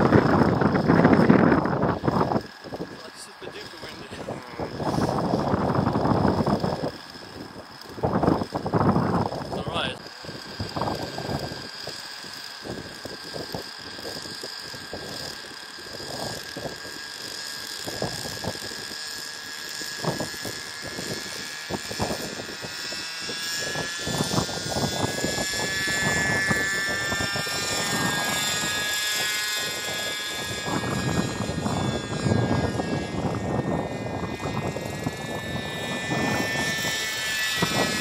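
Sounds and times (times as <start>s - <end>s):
model helicopter engine whine: 0.0s - 38.0s
wind buffeting microphone: 0.0s - 38.0s.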